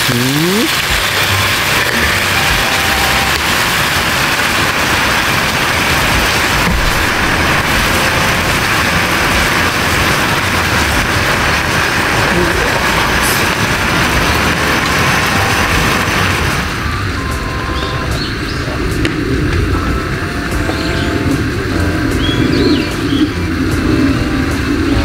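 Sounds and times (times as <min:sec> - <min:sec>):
liquid sizzling in frying pan: 0:00.0 - 0:18.4.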